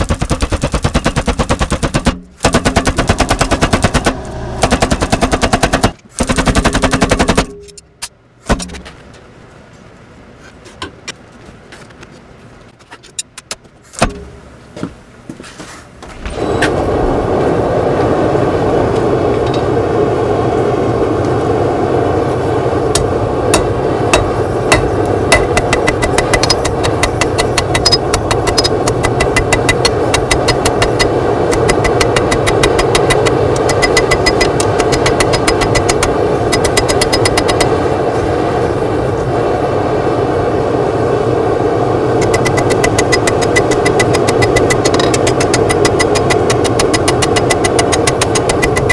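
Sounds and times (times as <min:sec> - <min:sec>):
hand hammer striking hot steel: 0:00.0 - 0:06.3, 0:13.4 - 0:14.4, 0:22.9 - 0:37.8, 0:42.2 - 0:48.9
scattered knocks: 0:00.0 - 0:07.4, 0:23.6 - 0:37.7, 0:42.2 - 0:48.9
power hammer blows: 0:00.0 - 0:07.8, 0:22.9 - 0:37.8, 0:42.2 - 0:48.9
machine drone: 0:00.0 - 0:09.4, 0:16.0 - 0:48.9.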